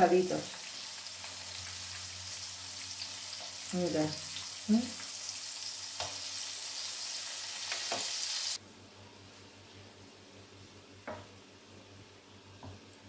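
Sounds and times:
battered beans sizzling in oil: 0.0 - 8.6.

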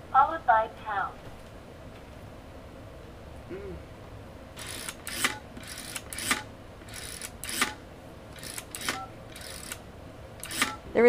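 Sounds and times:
toy rotary dial whirring: 4.6 - 7.8, 8.4 - 9.8, 10.4 - 10.8.

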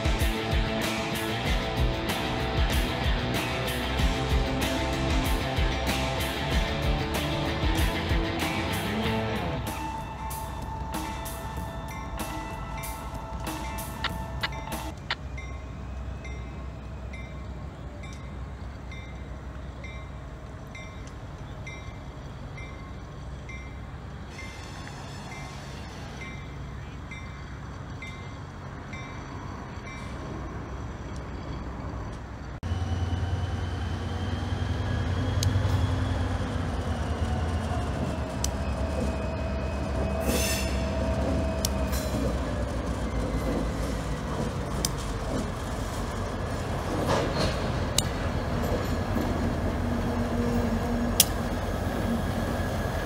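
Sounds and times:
wheels clicking on rails: 0.0 - 32.6, 33.3 - 53.0
diesel locomotive engine hum: 0.0 - 53.0
bell ringing: 9.6 - 20.1
wheel flanges squealing: 20.7 - 53.0.

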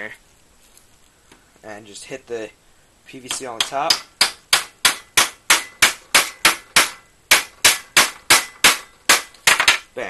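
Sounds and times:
hammer striking plastic pipe: 3.3 - 9.8.

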